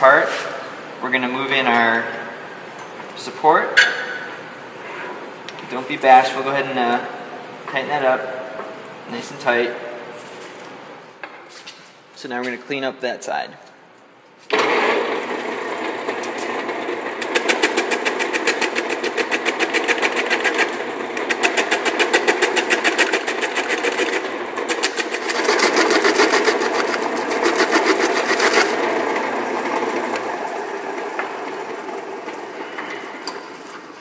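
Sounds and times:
lathe motor hum: 0:14.5 - 0:34.0
turning tool fluttering against foam: 0:17.2 - 0:28.8.

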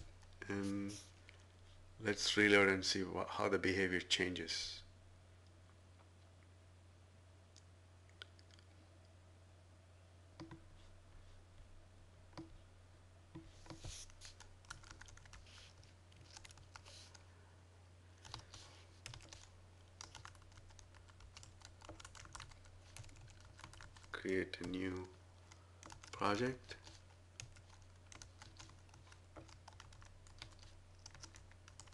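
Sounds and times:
low steady hum: 0:00.0 - 0:31.9
typing on computer keyboard: 0:14.3 - 0:15.4, 0:16.2 - 0:16.9, 0:18.2 - 0:24.8, 0:25.5 - 0:31.9.

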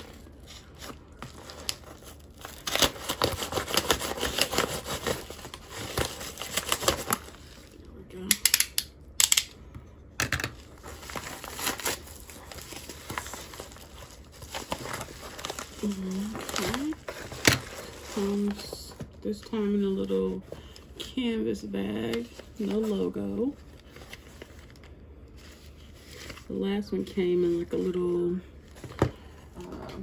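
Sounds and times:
paper envelope crinkling and tearing: 0:00.0 - 0:07.8, 0:10.5 - 0:20.4, 0:22.0 - 0:26.5.

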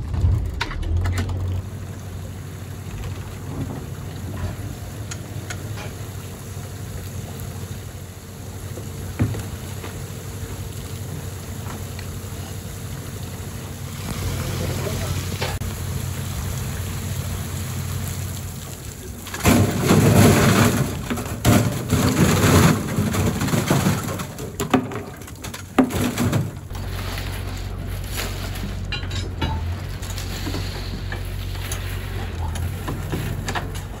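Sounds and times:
low machine hum: 0:00.0 - 0:25.2, 0:26.0 - 0:34.0
seawater pouring and dripping: 0:01.4 - 0:34.0
oysters clattering into wire baskets: 0:19.2 - 0:34.0.

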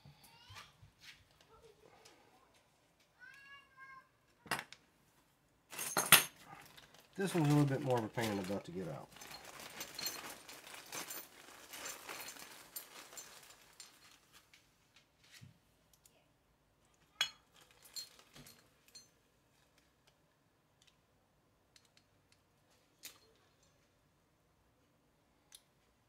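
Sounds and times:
small steel parts clicking: 0:21.7 - 0:22.4, 0:23.0 - 0:23.9.

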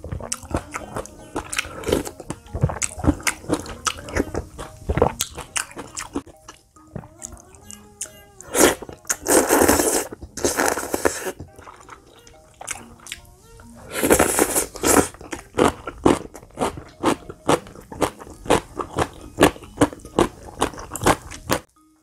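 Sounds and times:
person slurping noodles: 0:00.0 - 0:04.4, 0:08.4 - 0:11.9, 0:13.8 - 0:16.8
wet chewing and lip-smacking: 0:00.0 - 0:08.1, 0:08.8 - 0:13.4, 0:14.1 - 0:21.7.

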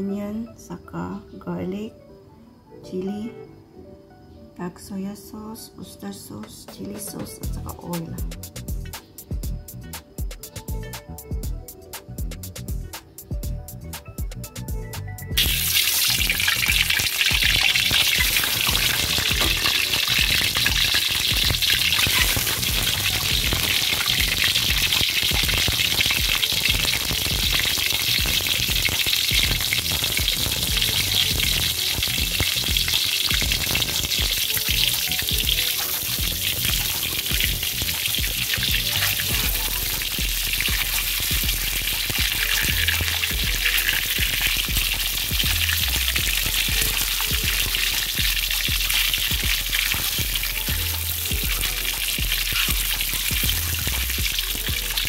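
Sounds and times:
eggs sizzling in hot oil: 0:15.4 - 0:55.0.

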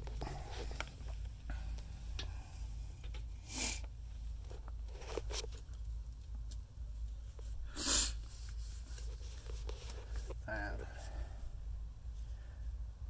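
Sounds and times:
handling rumble of phone: 0:03.9 - 0:06.1
crunching and rustling steps: 0:04.1 - 0:07.6, 0:08.2 - 0:11.2.

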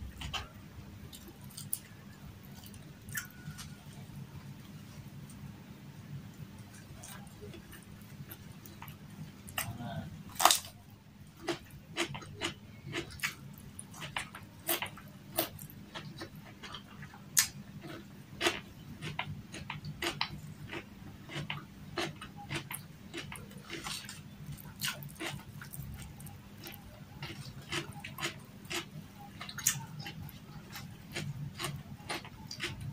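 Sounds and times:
low steady hum: 0:00.0 - 0:32.9
chewing and lip smacks: 0:18.4 - 0:32.9.

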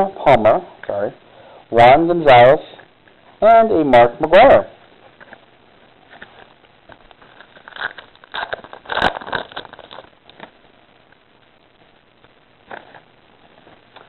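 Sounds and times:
cards rustling: 0:06.1 - 0:10.5
wrapper crinkling and tearing: 0:06.1 - 0:10.6.

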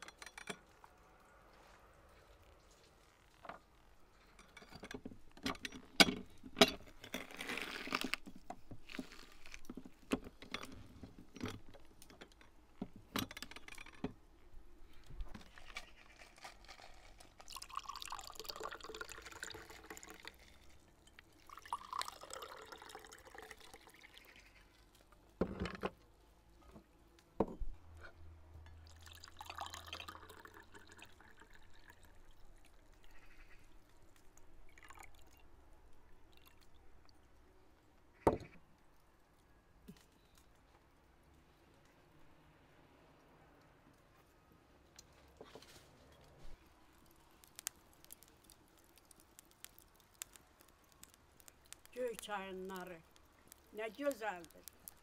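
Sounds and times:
juice pouring into glass: 0:16.3 - 0:24.3, 0:28.8 - 0:33.1, 0:34.7 - 0:35.5.

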